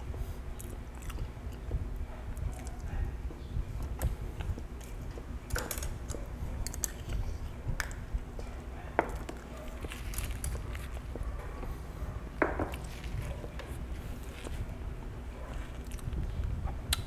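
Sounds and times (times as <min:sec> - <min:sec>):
chewing and mouth sounds: 0:00.4 - 0:03.2, 0:05.9 - 0:11.8, 0:15.4 - 0:17.0.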